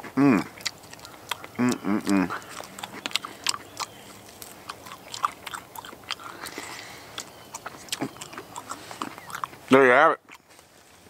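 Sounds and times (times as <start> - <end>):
person chewing crunchy food: 0.0 - 10.8.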